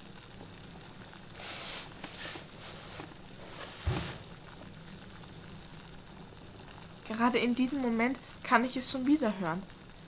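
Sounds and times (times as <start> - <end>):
rustling under a bed: 1.4 - 4.4.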